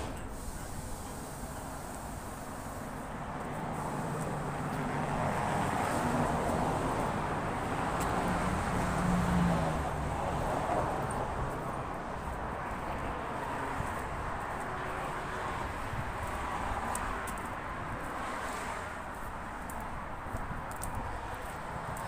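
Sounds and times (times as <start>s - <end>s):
vehicle passing: 0.0s - 22.0s.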